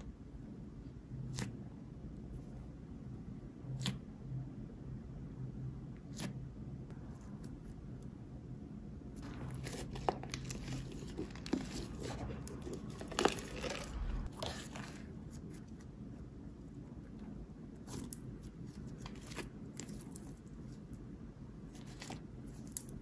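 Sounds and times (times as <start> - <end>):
plastic cup crinkling: 9.2 - 15.1.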